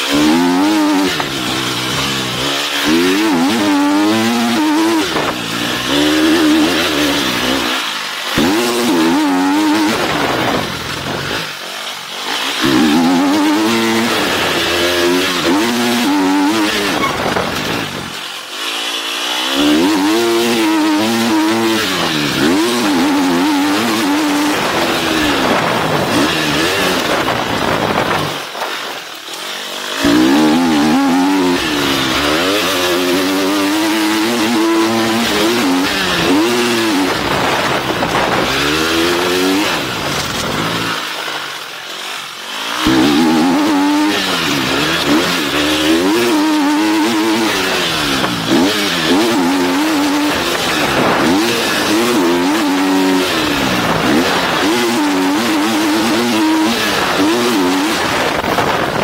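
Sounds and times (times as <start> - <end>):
motocross bike engine revving: 0.0 - 59.0
wind rushing on microphone: 57.9 - 59.0.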